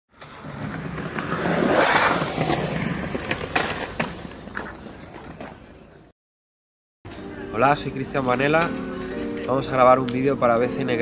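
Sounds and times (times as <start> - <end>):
skateboard rolling: 0.1 - 6.1.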